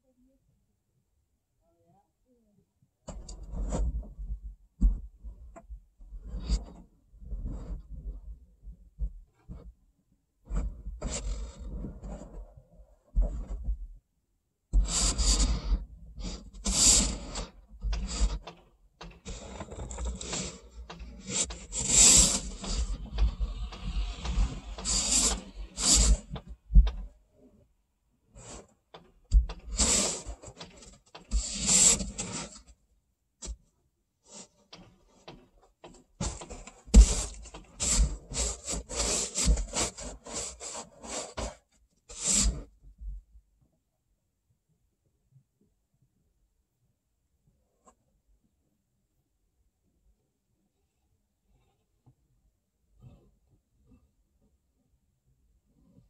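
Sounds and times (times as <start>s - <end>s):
ice scraped off car window: 19.3s - 26.4s, 29.7s - 32.6s, 36.2s - 42.6s.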